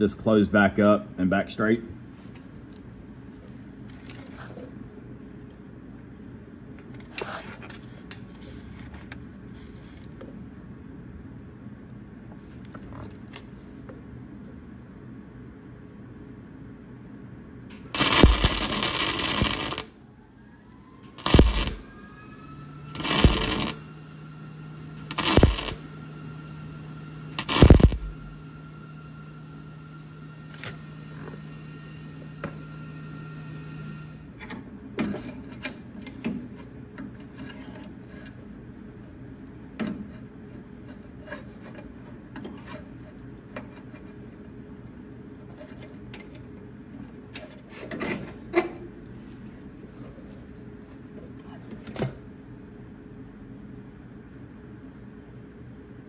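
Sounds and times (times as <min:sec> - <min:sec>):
crackling welding arc: 0:17.7 - 0:20.0, 0:21.0 - 0:22.0, 0:22.9 - 0:28.7
welder hum: 0:17.7 - 0:34.3.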